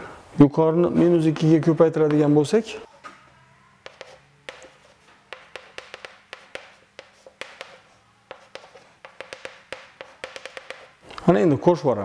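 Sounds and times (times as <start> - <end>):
chalk tapping on chalkboard: 3.8 - 11.0.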